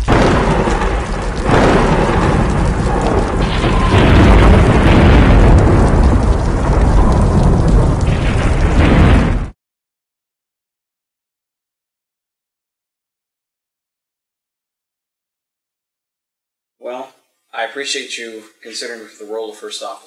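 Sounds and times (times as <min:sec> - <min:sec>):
heavy rain: 0:00.0 - 0:09.6
thunder rumbling: 0:00.0 - 0:09.6.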